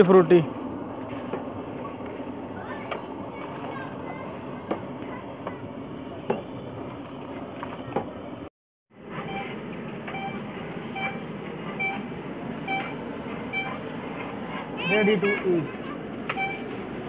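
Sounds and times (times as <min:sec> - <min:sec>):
outdoor background hiss: 0:08.3 - 0:17.0.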